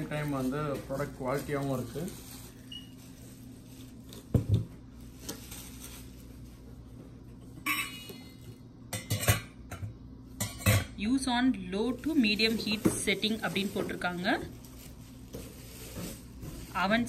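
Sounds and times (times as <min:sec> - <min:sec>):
metal pots clinking and clanking: 0:07.6 - 0:08.2, 0:08.9 - 0:11.0.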